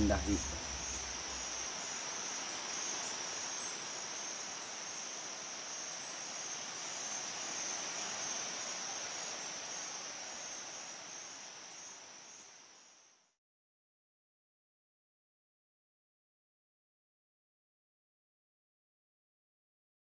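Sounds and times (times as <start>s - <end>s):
insects trilling: 0.0s - 13.3s.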